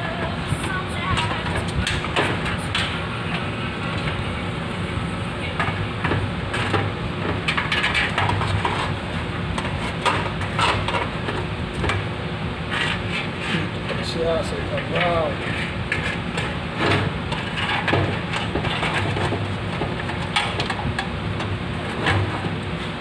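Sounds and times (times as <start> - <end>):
steady low hum: 0.0 - 23.0
metal knocks and scrapes: 5.6 - 14.1, 14.7 - 22.9.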